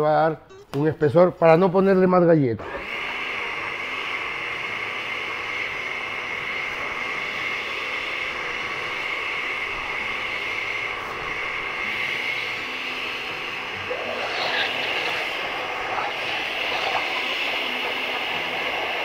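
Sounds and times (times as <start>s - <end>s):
blender motor running: 2.6s - 19.0s.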